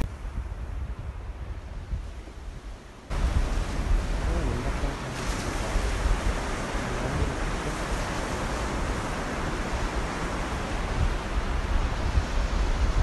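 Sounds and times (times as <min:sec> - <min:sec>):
ocean surf breaking on beach: 0:00.0 - 0:13.0
wind rumbling on microphone: 0:00.0 - 0:13.0.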